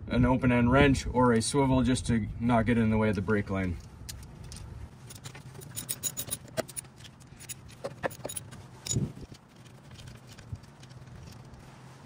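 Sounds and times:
sharp metal clicks: 0:03.8 - 0:11.6.

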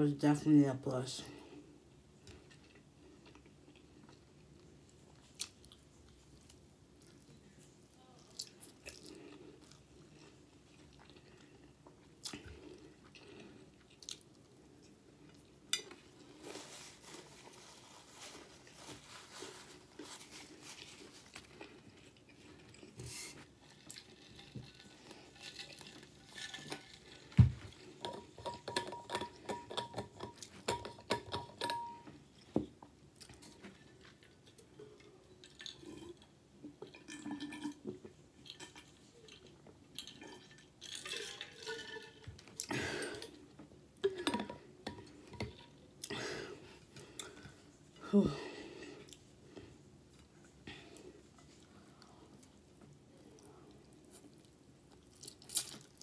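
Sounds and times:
close-up chewing: 0:02.2 - 0:16.4, 0:17.0 - 0:28.3, 0:49.0 - 0:56.0.

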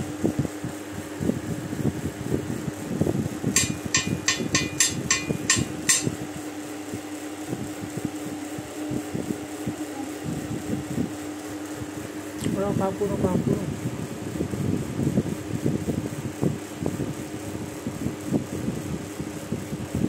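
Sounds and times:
steady hum: 0:00.0 - 0:20.0
metal tapping on metal: 0:03.6 - 0:06.2.

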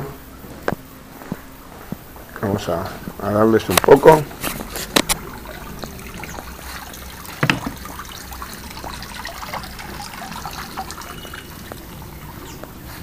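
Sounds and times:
water trickling into pond: 0:03.4 - 0:13.0.

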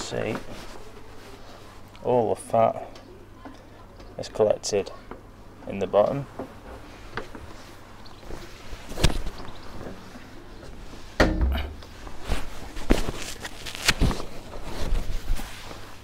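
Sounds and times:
cooking kit knocks and thuds: 0:11.2 - 0:11.8.

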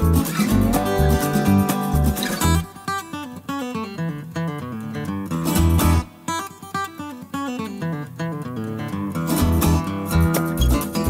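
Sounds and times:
steady beat: 0:00.0 - 0:02.7
plucked acoustic guitar: 0:00.0 - 0:11.0.

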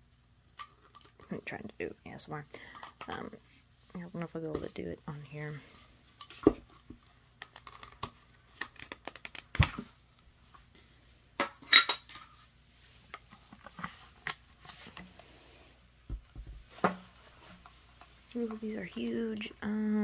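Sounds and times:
knock on cardboard tube: 0:16.1 - 0:16.6.

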